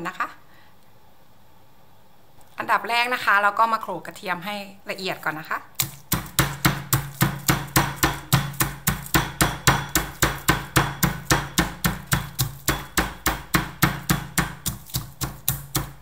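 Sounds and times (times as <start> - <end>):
pestle pounding in a mortar: 5.8 - 16.0.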